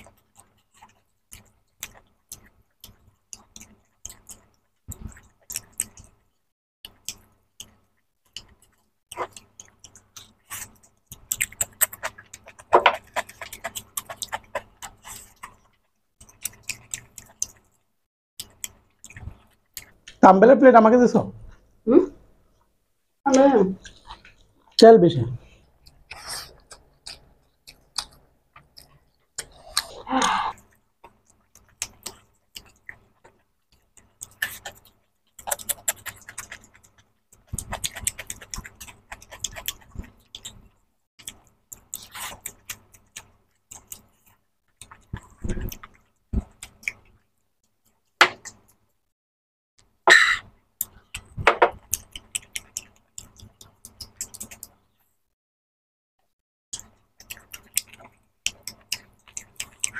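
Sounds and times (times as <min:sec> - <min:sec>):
wet chewing and mouth clicks: 0:00.0 - 0:20.2, 0:23.3 - 0:24.8, 0:25.4 - 0:48.9, 0:49.8 - 0:55.0, 0:56.7 - 0:59.9.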